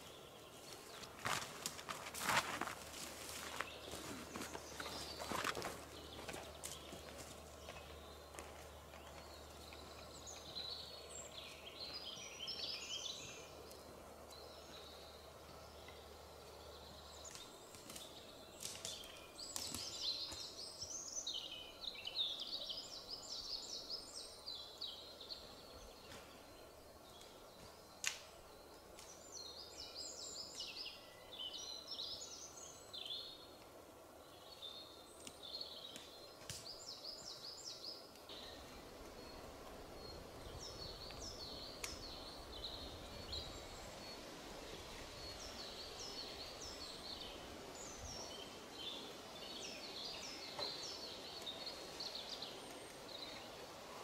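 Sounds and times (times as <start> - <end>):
songbirds warbling: 2.2 - 54.0
twigs snapping underfoot: 17.2 - 20.5, 28.0 - 28.3, 28.9 - 29.2, 35.2 - 36.9, 41.8 - 42.2.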